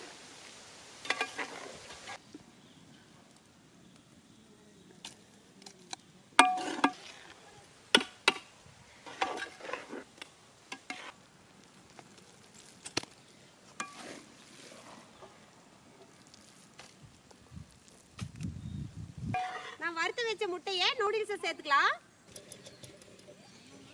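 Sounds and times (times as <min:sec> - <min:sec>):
ladle scraping pot: 0:13.8 - 0:15.2.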